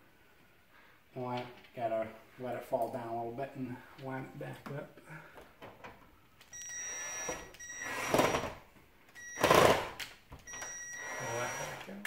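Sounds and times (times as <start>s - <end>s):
cordless drill whining: 6.6s - 8.6s, 9.2s - 12.0s.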